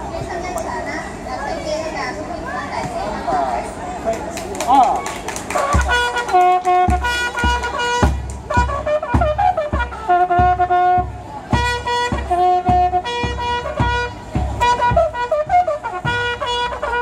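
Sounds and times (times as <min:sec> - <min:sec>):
bugles playing held notes: 0:05.5 - 0:17.0
bass drum beat: 0:05.6 - 0:17.0
snare drum strokes: 0:05.6 - 0:17.0.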